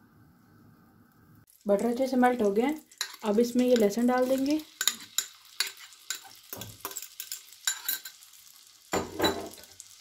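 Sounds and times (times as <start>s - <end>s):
butter sizzling in a frying pan: 1.5s - 10.0s
spoon scraping a glass bowl: 4.8s - 8.2s.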